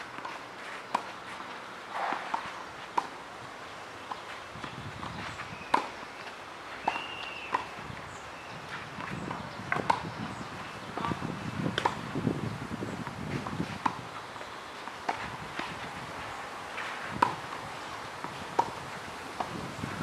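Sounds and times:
footsteps scuffing on clay: 0.0 - 3.0, 14.8 - 17.2
tennis ball pops: 17.2 - 17.4.

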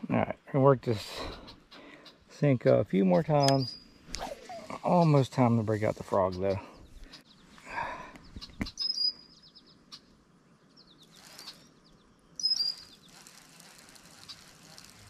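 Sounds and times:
songbird chirping: 0.1 - 14.9
sharp clicks: 3.3 - 4.2.

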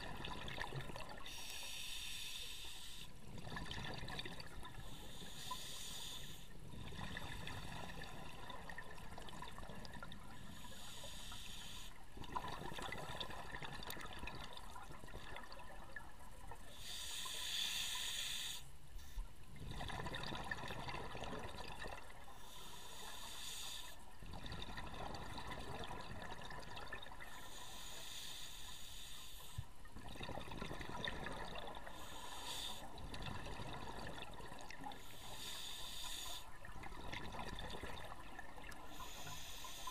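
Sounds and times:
exhaled bubbles underwater: 0.0 - 1.3, 3.2 - 5.2, 6.6 - 10.7, 12.0 - 16.7, 19.5 - 22.3, 24.1 - 27.4, 29.8 - 35.4, 36.2 - 39.9.

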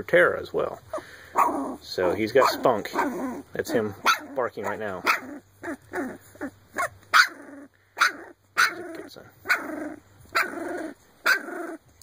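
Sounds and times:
puppy barking: 0.9 - 6.2, 6.8 - 8.9, 9.5 - 10.6, 11.2 - 11.5.

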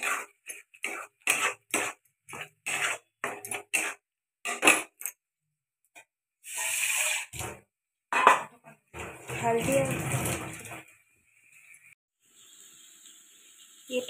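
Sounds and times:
metal spatula scraping pan: 0.0 - 5.0, 6.5 - 7.6, 9.0 - 10.9.

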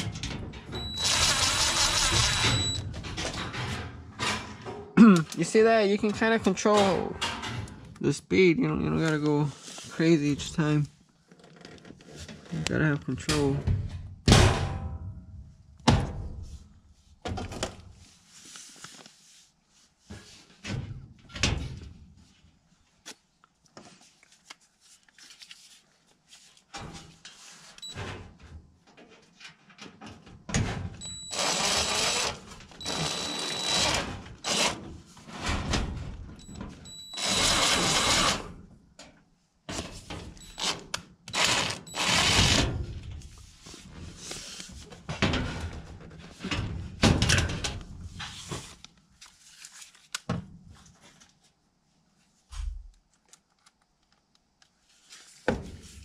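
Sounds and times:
cordless driver driving screws: 0.8 - 2.8, 31.2 - 34.8, 37.1 - 38.5, 40.4 - 42.6
sheet-metal panels knocking and rattling: 13.6 - 15.1.

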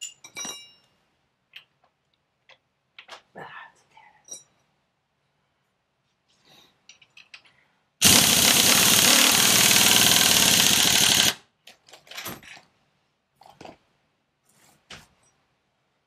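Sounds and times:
light metal clinks and knocks: 0.0 - 3.1, 4.2 - 4.6
impact wrench hammering: 8.0 - 11.4.

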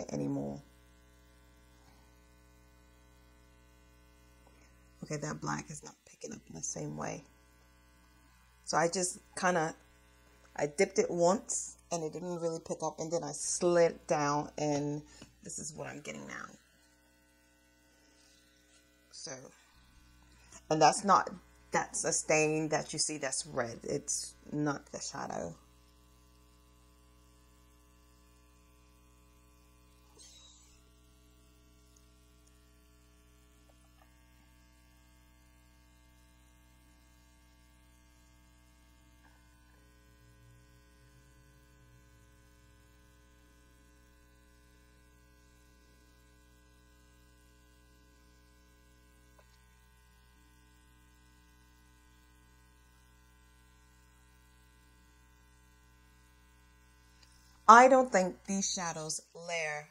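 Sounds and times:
electrical mains hum: 0.0 - 59.9.

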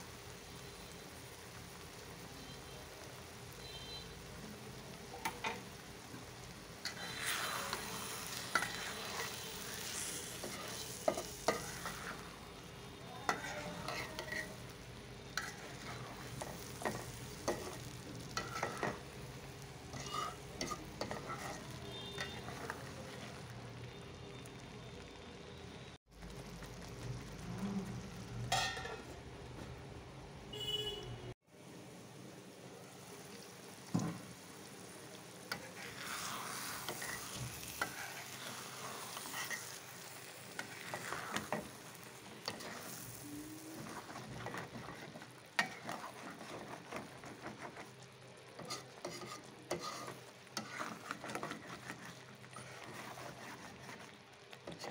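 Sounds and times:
frying sizzle: 0.0 - 54.9
spatula scraping metal pan: 6.8 - 12.4, 13.2 - 14.7, 15.3 - 19.1, 19.9 - 23.2, 35.5 - 54.9.

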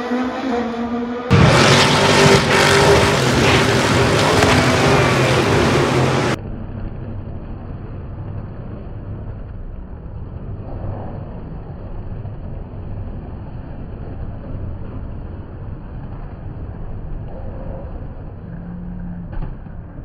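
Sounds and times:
truck engines revving: 0.0 - 6.4
muffled engine rumble: 1.3 - 20.0.

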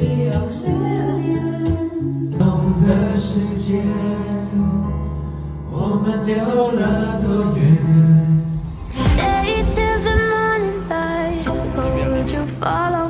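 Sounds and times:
song with strong bass line: 8.4 - 13.0.

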